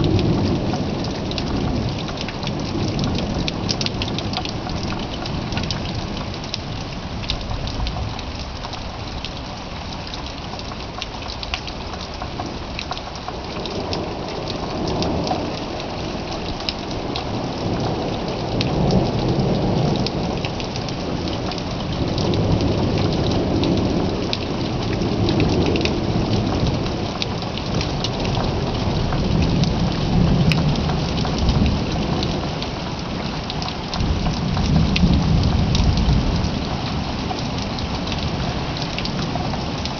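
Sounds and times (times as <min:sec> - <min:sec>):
steady rain: 0:00.0 - 0:39.9
rolling thunder: 0:34.0 - 0:37.3.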